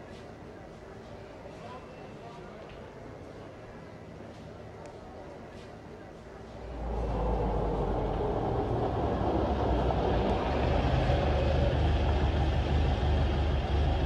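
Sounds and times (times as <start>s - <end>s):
truck engines rumbling: 6.5s - 14.0s.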